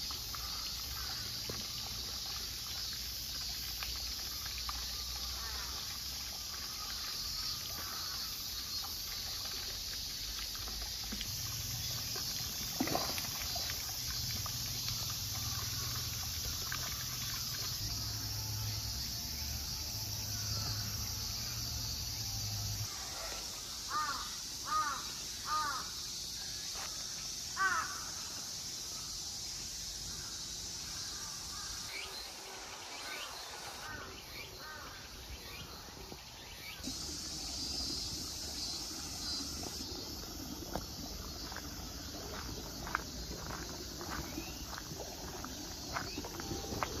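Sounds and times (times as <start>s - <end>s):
steady high hiss: 17.7s - 47.0s
crow cawing: 23.9s - 25.9s, 27.6s - 28.0s.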